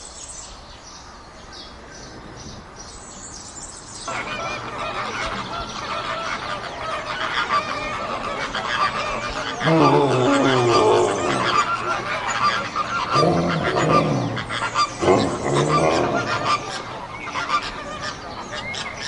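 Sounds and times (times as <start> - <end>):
busy background noise: 0.0 - 19.0
honking animal calls: 4.1 - 19.0.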